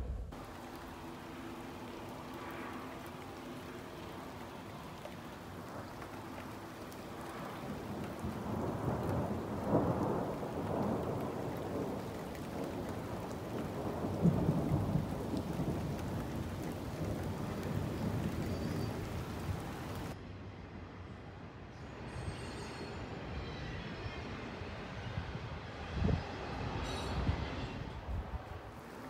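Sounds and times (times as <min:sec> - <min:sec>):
steady rain: 0:00.0 - 0:20.2, 0:28.2 - 0:29.0
thunder rumbling: 0:00.0 - 0:20.2.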